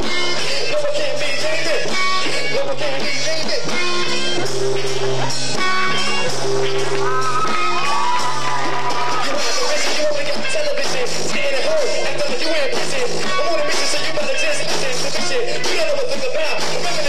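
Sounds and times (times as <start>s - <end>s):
man singing into a microphone: 0.0s - 4.4s, 9.1s - 17.0s
live rock band playing: 0.0s - 17.0s.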